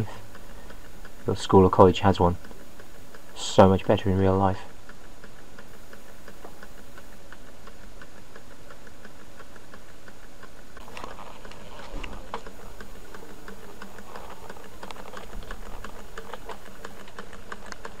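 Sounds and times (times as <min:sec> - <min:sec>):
engine linkage ticking: 0:00.0 - 0:18.0
rustling: 0:10.8 - 0:18.0.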